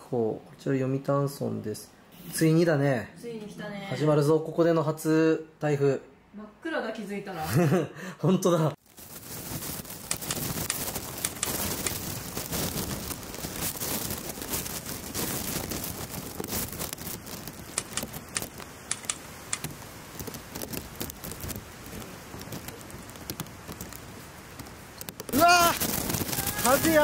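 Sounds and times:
sharp clicks and knocks: 17.7 - 20.3.

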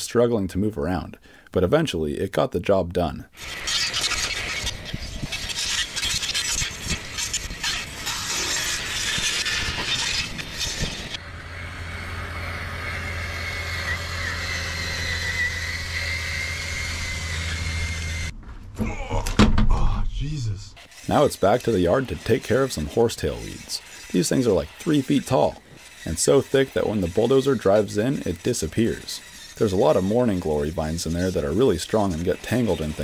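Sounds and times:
saw blades cutting brush: 3.4 - 18.3, 20.8 - 33.0
whine of blade motors: 3.4 - 18.3, 20.8 - 33.0
low hum: 6.7 - 21.1.

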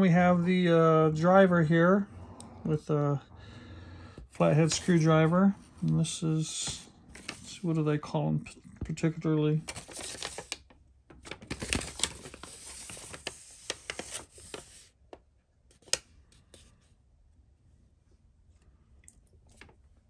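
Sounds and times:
paper rustling and crinkling: 6.7 - 7.7, 9.6 - 15.0.

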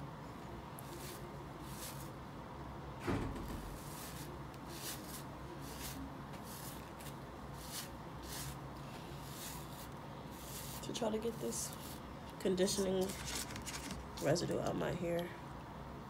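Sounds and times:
hairbrush swishing through hair: 0.8 - 2.2, 3.7 - 13.2
dull thump: 3.0 - 3.8.

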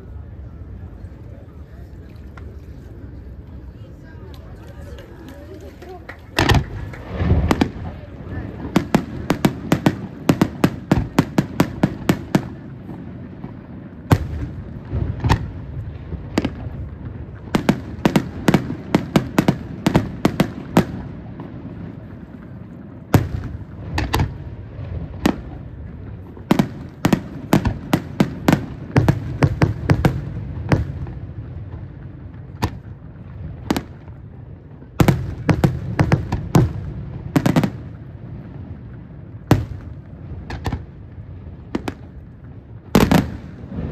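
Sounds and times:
firework shells bursting: 6.1 - 7.8.

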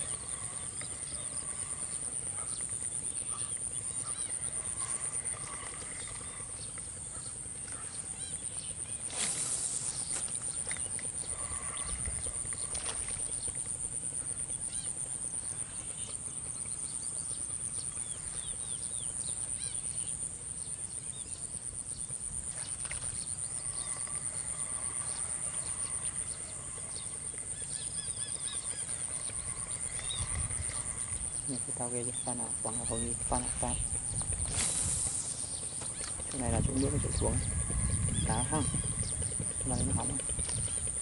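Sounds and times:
steady high-pitched buzz: 0.0 - 41.0
birds chirping and calling: 22.7 - 41.0.

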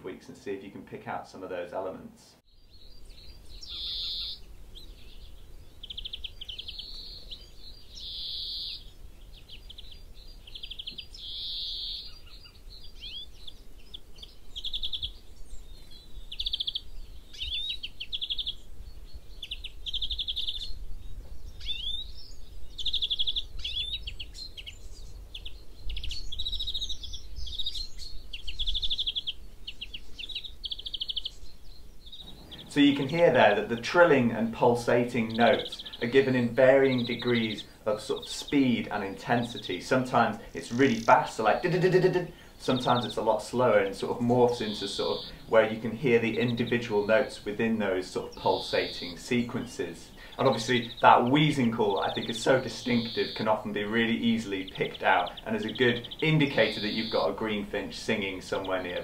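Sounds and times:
finch singing trills: 2.5 - 59.0
long wheezy bird notes: 29.0 - 59.0.

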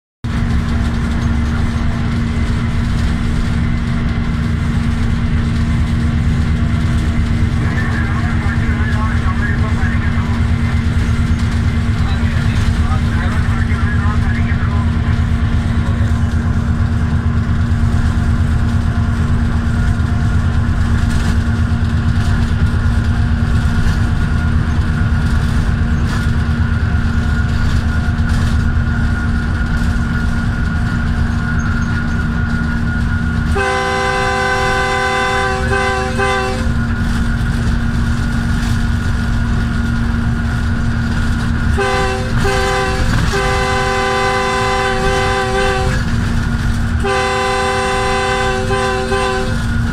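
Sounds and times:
diesel locomotive running: 0.2 - 49.9
locomotive air horn blasts: 33.5 - 36.8, 41.7 - 46.2, 46.9 - 49.9.

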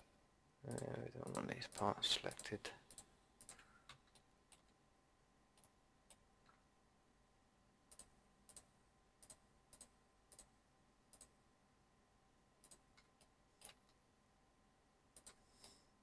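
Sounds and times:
faint computer mouse clicks: 7.9 - 10.5, 15.2 - 15.8.

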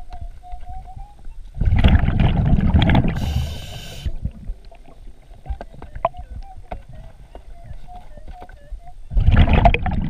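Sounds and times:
exhaled bubbles rushing: 1.6 - 4.6, 9.1 - 10.0
regulator inhalation hiss: 3.1 - 4.2.

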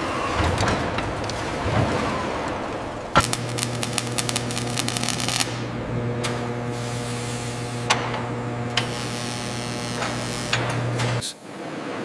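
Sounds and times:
low electrical hum: 2.5 - 12.0
welding crackle: 3.1 - 11.3.

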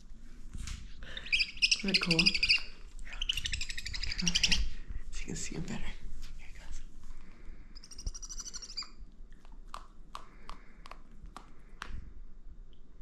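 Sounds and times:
owl chittering call: 1.2 - 4.7, 7.8 - 9.0
sharp clicks of eating: 8.3 - 12.0.

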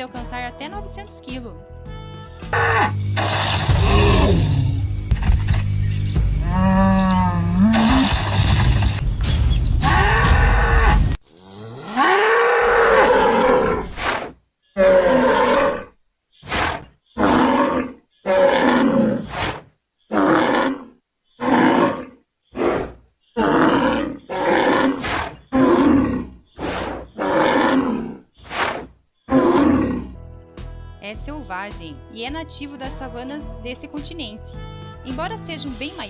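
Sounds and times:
buffalo bellowing and grunting: 2.5 - 3.0, 3.6 - 4.8, 6.4 - 8.1, 9.8 - 19.3, 20.1 - 28.6, 29.3 - 30.2.

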